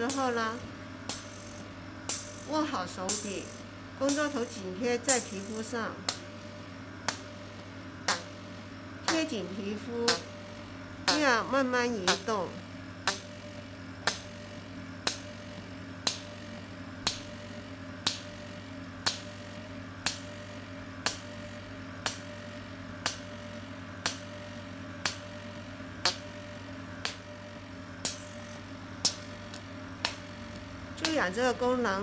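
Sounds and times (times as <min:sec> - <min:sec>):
sharp clicks of machine: 0:00.0 - 0:06.3, 0:07.0 - 0:07.3, 0:08.0 - 0:08.4, 0:09.1 - 0:09.4, 0:10.1 - 0:10.3, 0:11.0 - 0:11.4, 0:12.0 - 0:12.3, 0:13.0 - 0:13.3, 0:14.0 - 0:14.3, 0:15.0 - 0:15.3, 0:16.0 - 0:16.3, 0:17.0 - 0:17.3, 0:19.0 - 0:19.3, 0:20.0 - 0:20.3, 0:21.0 - 0:21.3, 0:22.0 - 0:22.3, 0:23.0 - 0:23.3, 0:24.0 - 0:24.3, 0:25.0 - 0:25.3, 0:26.0 - 0:26.3, 0:27.0 - 0:27.3, 0:28.0 - 0:31.3
machine humming: 0:00.0 - 0:32.0.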